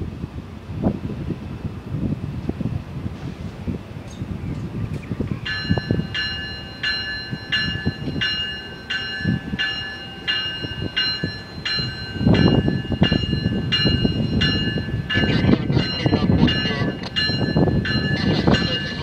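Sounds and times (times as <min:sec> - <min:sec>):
train low rumble: 0:00.0 - 0:19.0
train warning bell ringing: 0:05.4 - 0:19.0.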